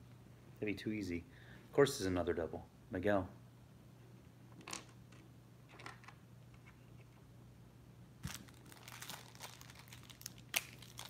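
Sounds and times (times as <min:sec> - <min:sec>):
packaging crinkling and tearing: 0:08.2 - 0:11.0.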